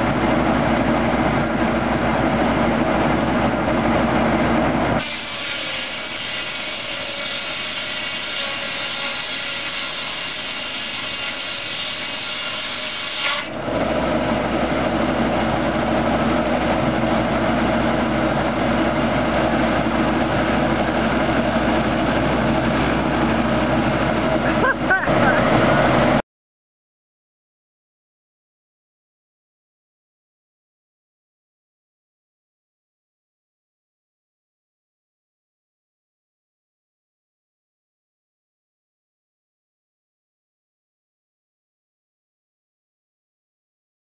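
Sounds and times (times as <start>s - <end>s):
sawmill machine drone: 0.0s - 26.2s
hissy sawing: 5.0s - 14.3s.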